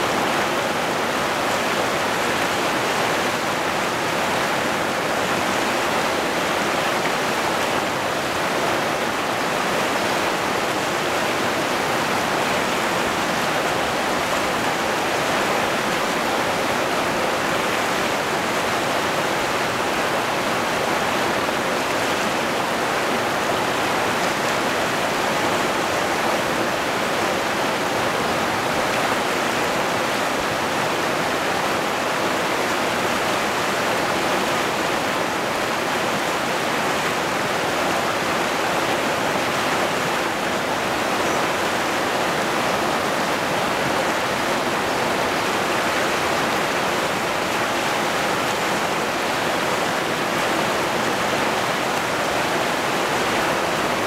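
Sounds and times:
river rapids rushing: 0.0 - 54.0.

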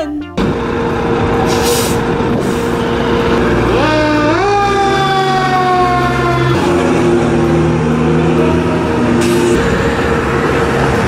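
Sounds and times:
fire engine running: 0.0 - 11.0
siren winding up and falling: 3.7 - 6.8.

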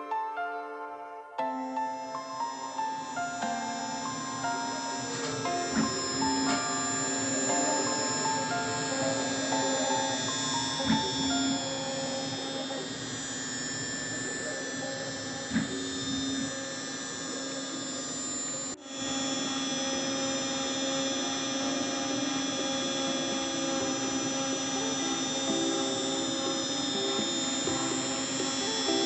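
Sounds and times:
router spindle whining: 1.5 - 29.0.

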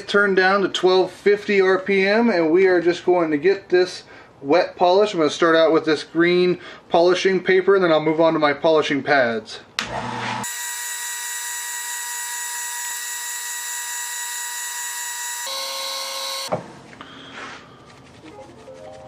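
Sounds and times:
cloth rubbing spinning wood: 17.7 - 19.0.

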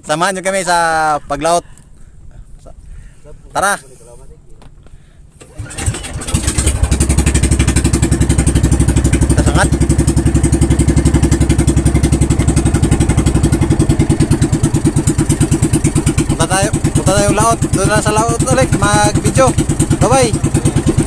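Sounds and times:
boat engine chugging: 5.5 - 21.0.

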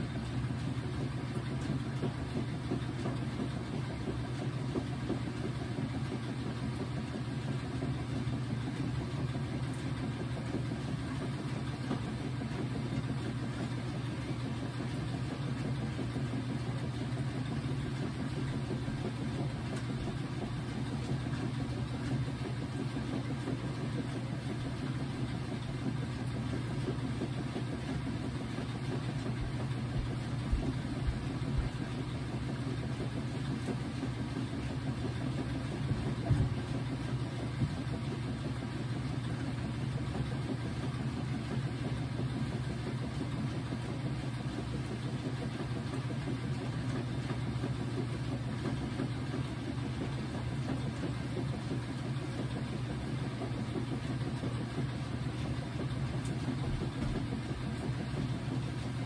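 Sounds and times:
washing machine motor hum: 0.0 - 59.0
washing machine thumps: 35.8 - 36.8, 56.7 - 57.7.

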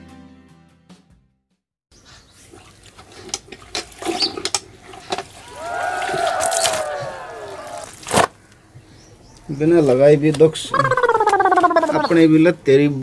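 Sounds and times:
water pouring and gurgling: 2.4 - 6.8.

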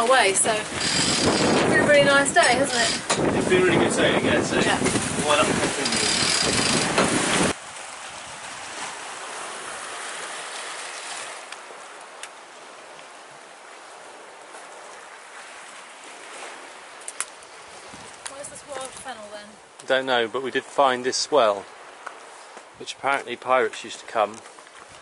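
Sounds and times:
wind buffeting microphone: 0.0 - 8.8, 17.6 - 19.2
sea waves washing on rocks: 0.0 - 19.5.

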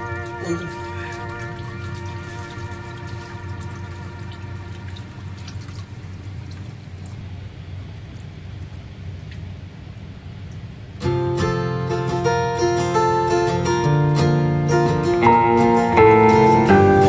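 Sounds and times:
oil stream trickling and splashing: 0.0 - 8.8
oil dripping: 0.0 - 9.4.

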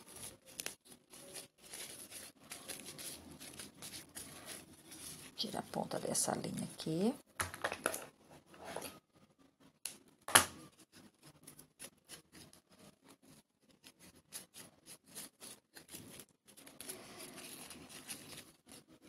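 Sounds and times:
ribbon rustling: 0.0 - 6.8, 10.6 - 19.0.

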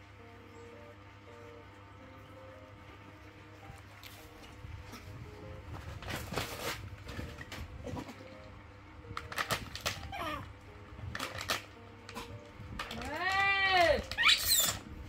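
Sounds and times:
snack packet crinkling: 9.1 - 10.3, 11.1 - 14.8
monkey squeaking call: 14.2 - 14.8.

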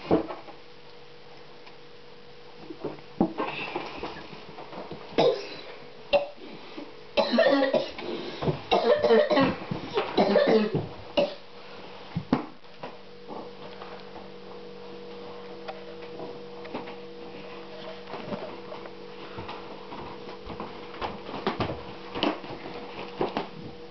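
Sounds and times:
quiet steady hum: 0.0 - 23.9
boy coughing and choking: 5.2 - 6.4, 7.2 - 8.0, 8.7 - 11.4.

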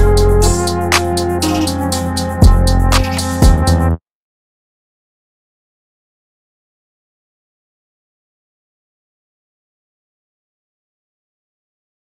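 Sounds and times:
music with drum beat and bass: 0.0 - 3.9.

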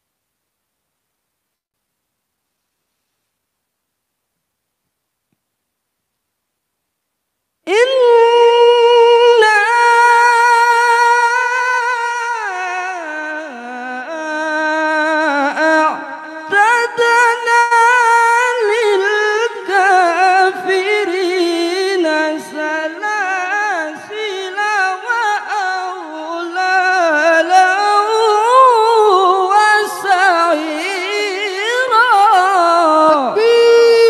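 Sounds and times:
man reciting melodically: 7.6 - 34.0.

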